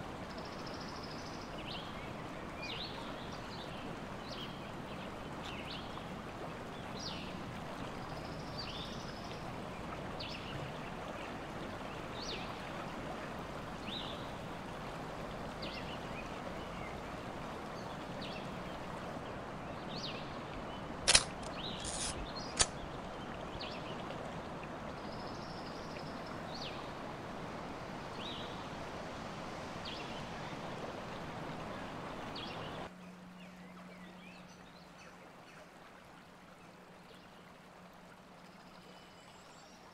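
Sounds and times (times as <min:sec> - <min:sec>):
running water: 0:00.0 - 0:39.9
songbirds chirping: 0:00.1 - 0:39.9
sharp clicks: 0:21.1 - 0:22.8.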